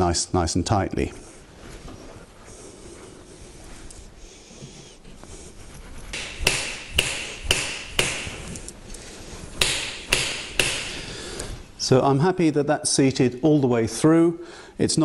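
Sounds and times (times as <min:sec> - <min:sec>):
hammer handle knocking on anvil: 0:06.2 - 0:08.4, 0:09.6 - 0:11.0.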